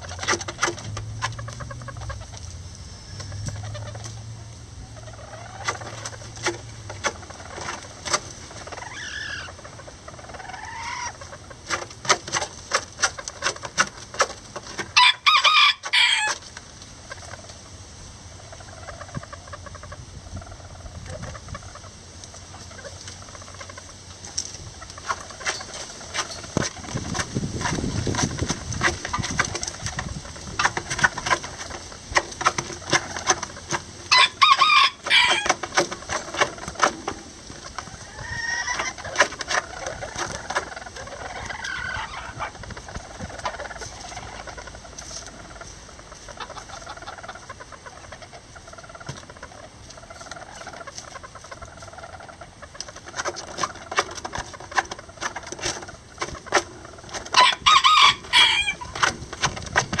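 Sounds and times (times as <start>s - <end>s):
straw crackling: 0.0s - 17.6s, 21.8s - 60.0s
chickens clucking: 0.0s - 60.0s
short loud chicken calls: 8.5s - 11.4s, 14.9s - 16.4s, 34.1s - 36.9s, 37.7s - 52.4s, 57.4s - 59.1s.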